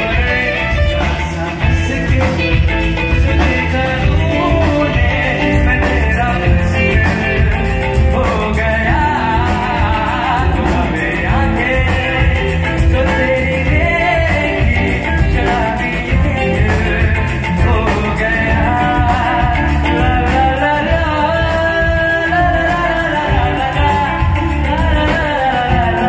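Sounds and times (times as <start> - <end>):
electric guitar: 0.0 - 26.0
keyboards: 0.0 - 26.0
person singing: 0.0 - 26.0
steady beat: 0.0 - 26.0.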